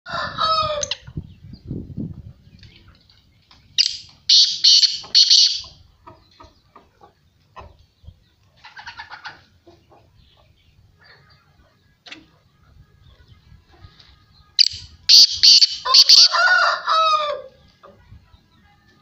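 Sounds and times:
harsh grating bird call: 0:03.8 - 0:05.7, 0:14.6 - 0:16.5
rattling bird call: 0:03.8 - 0:05.7, 0:14.6 - 0:16.3
short bird calls: 0:03.8 - 0:05.7.

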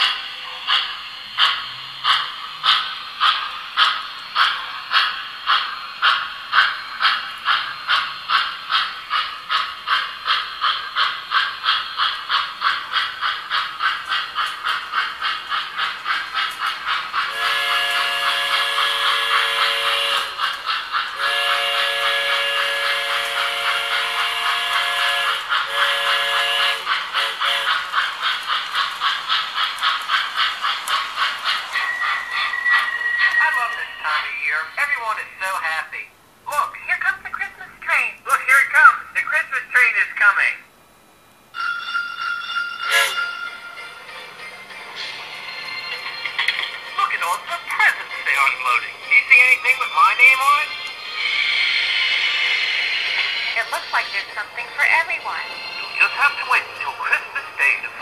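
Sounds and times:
toy steam locomotive chuffing: 0:00.0 - 0:35.9, 0:42.7 - 0:58.0
steam whistle blasts: 0:17.3 - 0:20.4, 0:21.2 - 0:27.8, 0:42.8 - 0:43.4.

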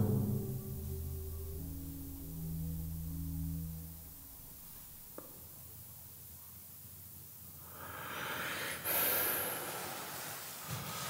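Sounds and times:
person breathing heavily: 0:07.6 - 0:10.2.

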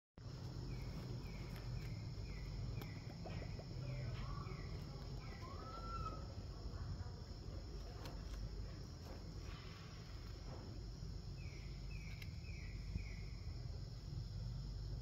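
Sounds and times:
bird chirping: 0:00.2 - 0:06.5, 0:11.2 - 0:13.8
high insect drone: 0:00.2 - 0:15.0.

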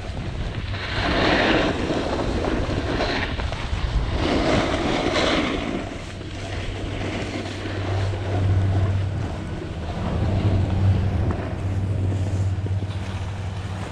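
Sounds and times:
snowboard scraping over snow: 0:00.0 - 0:13.9
wind rumbling on microphone: 0:00.0 - 0:13.9.

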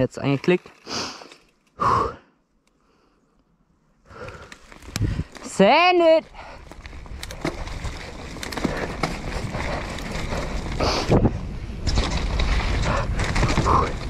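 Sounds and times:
bike tyres rolling and rattling: 0:04.1 - 0:14.0
wind buffeting microphone: 0:04.8 - 0:14.0.

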